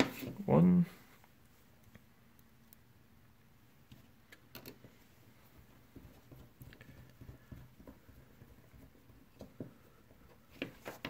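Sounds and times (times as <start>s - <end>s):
fingers handling plastic parts: 3.8s - 11.0s.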